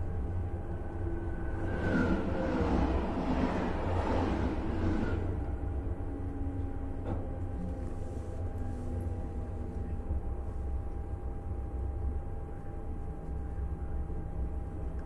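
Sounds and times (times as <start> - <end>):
train running gear rumble: 0.0 - 11.2
steady train whine: 0.0 - 15.0.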